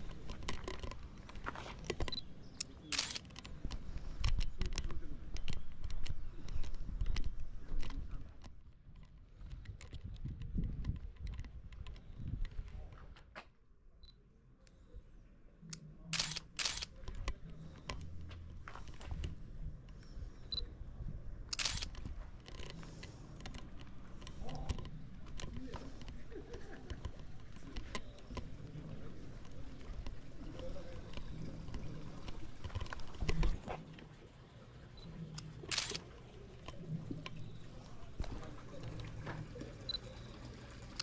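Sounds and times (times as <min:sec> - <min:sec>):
handling and walking noise: 0:00.0 - 0:13.6, 0:16.2 - 0:20.3, 0:21.5 - 0:34.3
camera shutter clicking: 0:02.9 - 0:03.3, 0:16.2 - 0:16.9, 0:21.5 - 0:22.0, 0:35.7 - 0:36.0.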